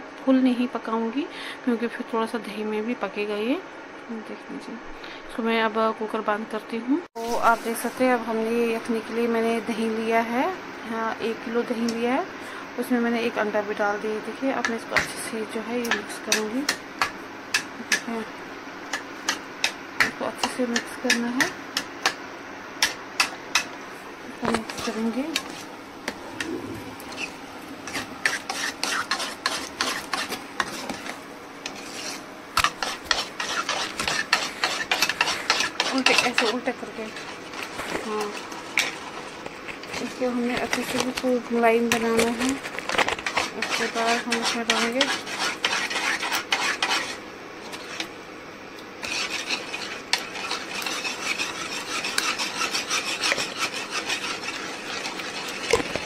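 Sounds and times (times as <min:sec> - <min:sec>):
utensil scraping and clinking bowl: 0:24.4 - 0:41.3, 0:41.9 - 0:48.1, 0:49.0 - 0:56.0.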